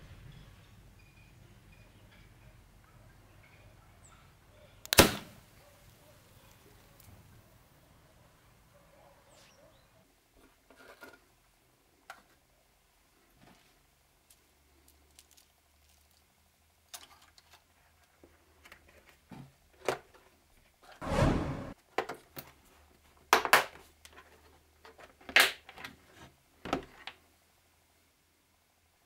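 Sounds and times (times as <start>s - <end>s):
sharp plastic clicks: 4.8s - 5.4s.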